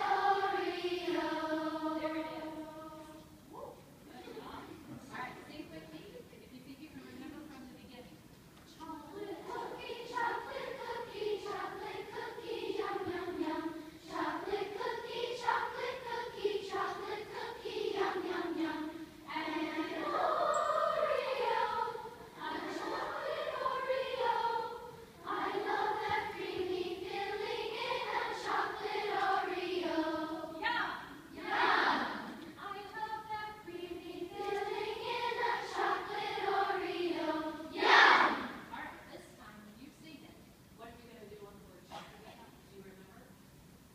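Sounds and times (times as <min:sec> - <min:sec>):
children's choir vocalizing: 0:00.0 - 0:03.6, 0:08.8 - 0:38.7.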